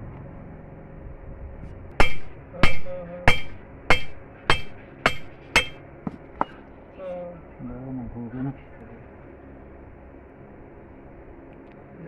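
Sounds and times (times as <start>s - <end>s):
hammer blows on steel: 2.0s - 5.8s.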